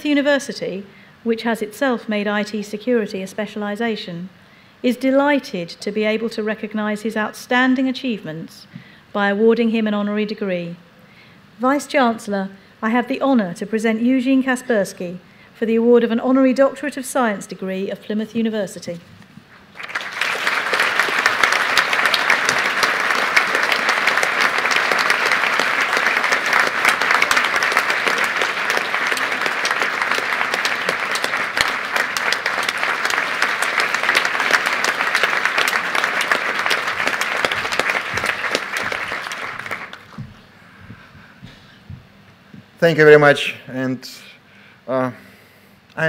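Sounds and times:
audience applauding: 19.7s - 40.3s.

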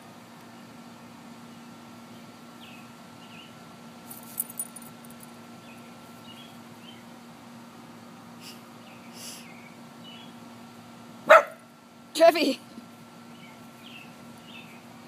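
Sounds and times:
faint steady hum: 0.0s - 15.0s
metal leash clasp jingling: 4.2s - 5.3s.

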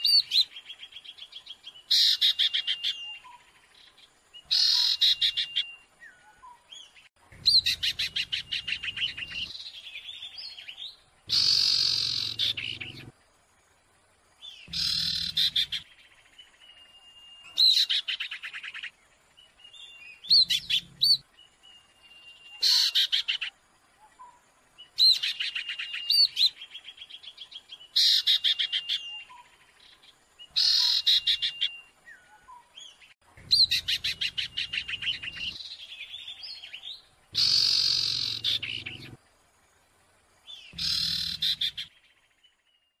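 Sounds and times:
birds chattering trills: 4.4s - 5.8s, 6.4s - 13.2s, 14.4s - 18.9s, 19.7s - 23.5s, 24.2s - 39.2s, 40.4s - 42.2s.

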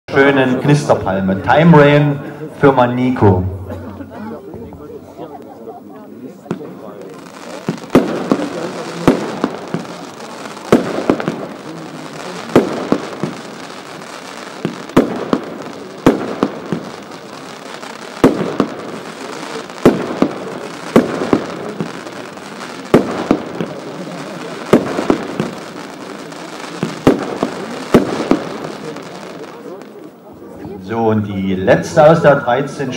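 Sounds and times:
rushing noise of fireworks: 0.1s - 32.9s
firework battery shots: 6.4s - 30.1s.

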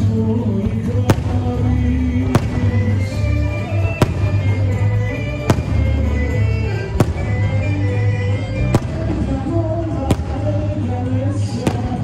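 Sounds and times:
firework shells bursting: 2.3s - 7.7s.

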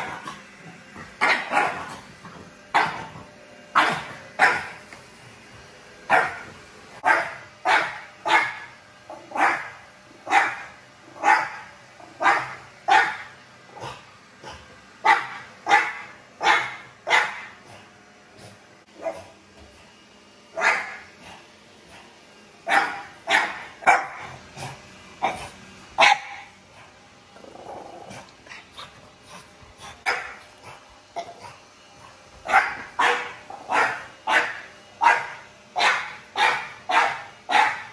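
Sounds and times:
dog barking: 1.2s - 2.0s, 3.8s - 4.8s, 6.1s - 6.4s, 7.0s - 8.7s, 9.3s - 11.6s, 12.2s - 13.3s, 15.0s - 17.5s, 20.6s - 21.0s, 22.6s - 24.3s, 26.0s - 26.5s, 30.0s - 30.4s, 32.4s - 37.9s.

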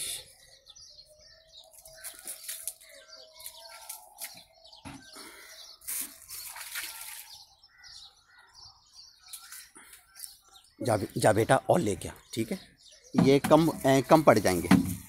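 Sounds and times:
water splashing onto soil: 5.9s - 7.4s.

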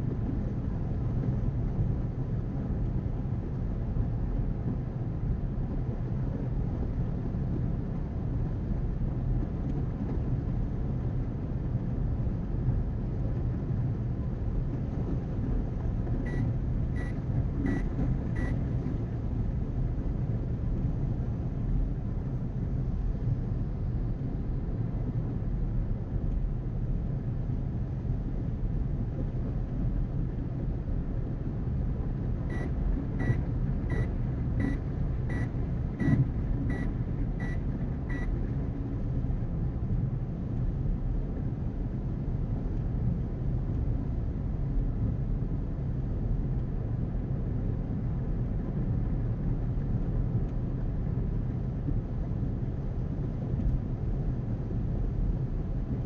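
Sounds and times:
car road and engine rumble: 0.0s - 56.0s
short high electronic beeps: 32.5s - 38.3s.

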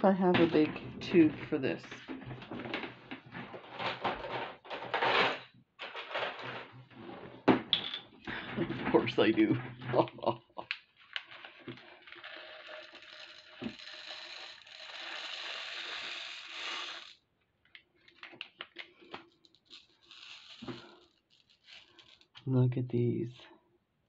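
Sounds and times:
glass beads pouring rattling hiss: 11.9s - 17.2s, 19.4s - 22.3s
beads clicking as they settle: 12.1s - 22.4s.

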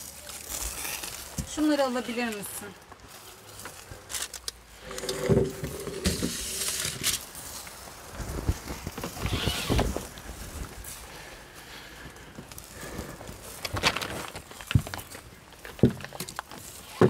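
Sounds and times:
pitched creak: 9.1s - 10.0s
cloth rustling: 13.5s - 15.1s
clicks and knocks of gear: 13.6s - 17.0s.

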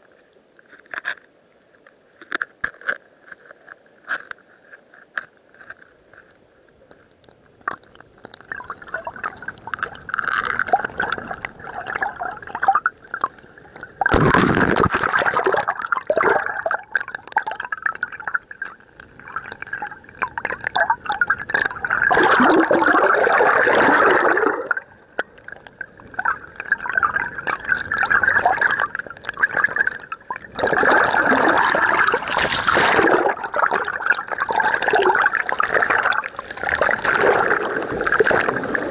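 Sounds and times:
underwater water sloshing and bubbling: 0.0s - 38.9s
churning water surges: 30.6s - 38.9s.

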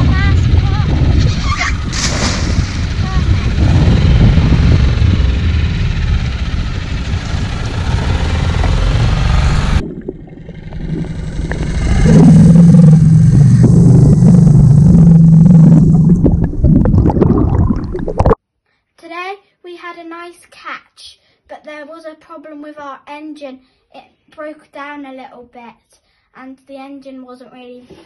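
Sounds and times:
outboard motor running: 0.0s - 16.8s
propeller churning bubbles: 0.0s - 18.4s
underwater engine drone: 0.0s - 18.4s.

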